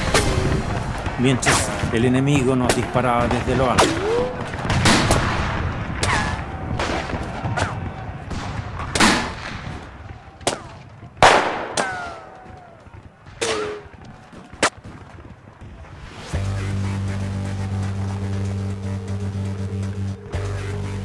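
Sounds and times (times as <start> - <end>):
rifle shots: 0.0 - 12.6.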